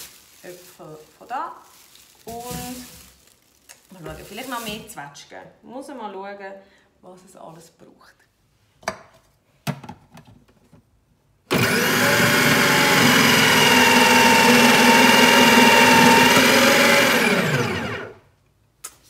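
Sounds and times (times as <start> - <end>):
food processor running: 11.5 - 18.2
fruit being grated: 11.6 - 17.8.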